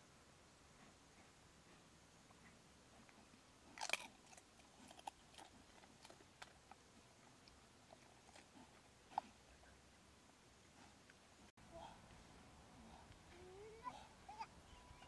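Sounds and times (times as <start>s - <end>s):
pig chewing and crunching: 2.4s - 9.5s.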